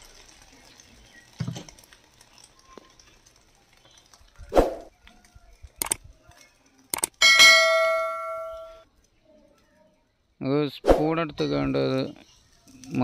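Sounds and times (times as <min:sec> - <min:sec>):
sharp clicks: 0:05.8 - 0:06.1, 0:06.9 - 0:07.2.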